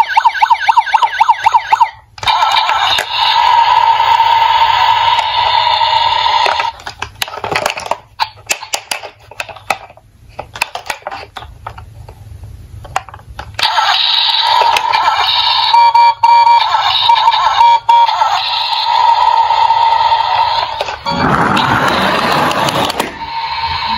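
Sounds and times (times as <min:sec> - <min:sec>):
toy electronic siren: 0:00.0 - 0:06.7, 0:13.6 - 0:23.9
plastic toy cars clicking: 0:06.4 - 0:11.9.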